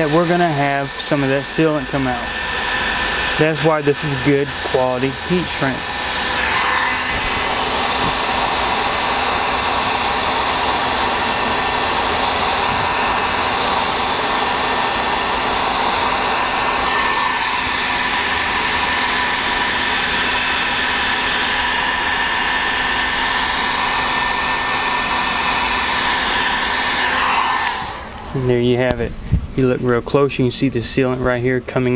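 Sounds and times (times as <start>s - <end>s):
heat gun blowing with whine: 0.0s - 29.7s.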